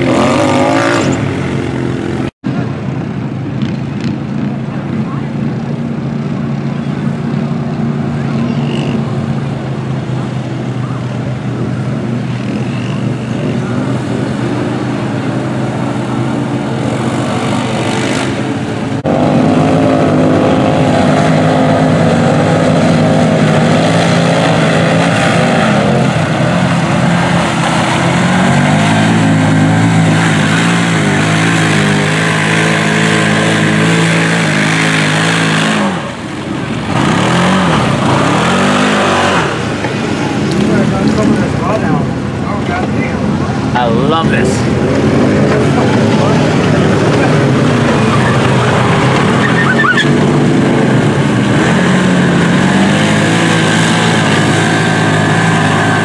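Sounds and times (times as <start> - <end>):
utility vehicle engines revving: 0.0 - 56.0
vehicles churning through mud: 0.0 - 56.0.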